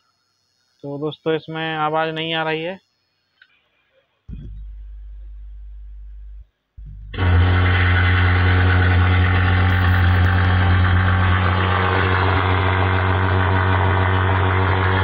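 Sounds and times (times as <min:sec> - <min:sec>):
speaker harsh buzzing hum: 0:04.2 - 0:15.0.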